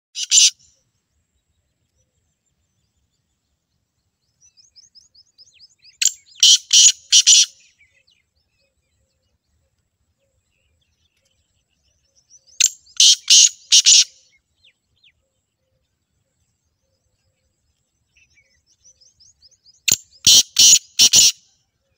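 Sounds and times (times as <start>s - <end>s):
partridge calling: 0.2s - 0.7s, 5.1s - 8.0s, 12.4s - 14.2s, 19.8s - 21.5s.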